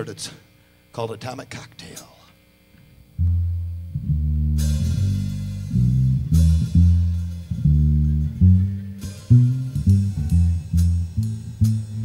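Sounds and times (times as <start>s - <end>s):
drum kit playing: 3.2s - 12.0s
upright bass plucked notes: 3.2s - 12.0s.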